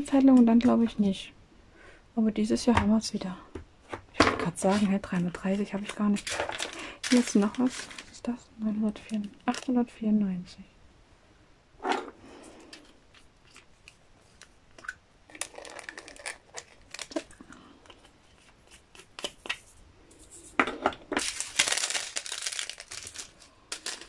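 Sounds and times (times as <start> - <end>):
plastic bags crinkling: 4.6 - 8.3, 8.9 - 9.7, 12.8 - 19.3, 21.1 - 24.0
plastic bag tearing: 6.1 - 8.2, 15.3 - 17.4, 21.2 - 24.0.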